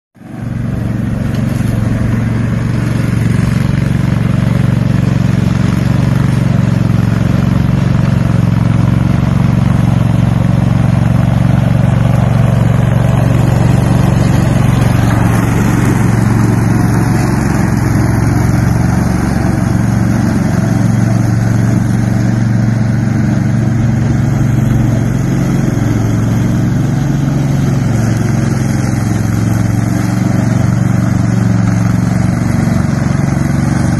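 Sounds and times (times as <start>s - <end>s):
lawn mower engine running: 0.2s - 33.9s.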